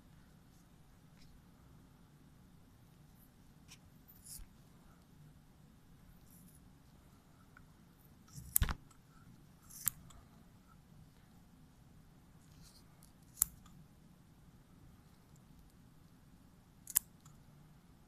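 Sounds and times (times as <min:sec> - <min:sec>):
faint low hum: 0:00.0 - 0:18.0
scissors snipping: 0:08.3 - 0:08.8, 0:09.7 - 0:10.1, 0:12.6 - 0:13.7, 0:16.8 - 0:17.3.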